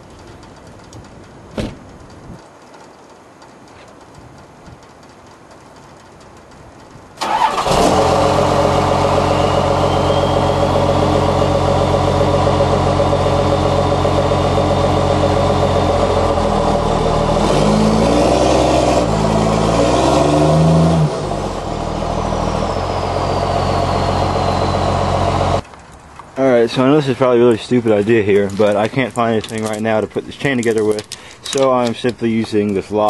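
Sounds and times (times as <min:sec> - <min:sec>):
diesel truck engine revving: 0:07.2 - 0:25.6
thin high whine: 0:09.1 - 0:11.5.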